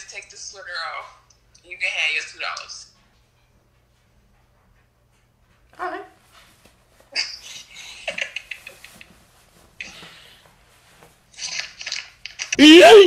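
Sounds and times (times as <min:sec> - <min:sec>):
woman squealing and laughing: 0:12.6 - 0:13.0.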